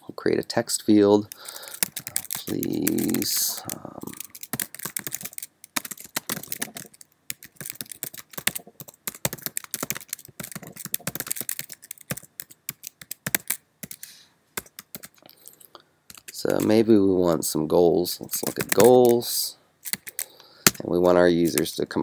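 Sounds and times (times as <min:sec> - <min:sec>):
person speaking: 0:00.0 - 0:12.6, 0:16.1 - 0:19.6, 0:20.2 - 0:22.0
keyboard typing: 0:01.3 - 0:15.2, 0:16.1 - 0:16.7, 0:18.3 - 0:19.2, 0:19.8 - 0:21.7.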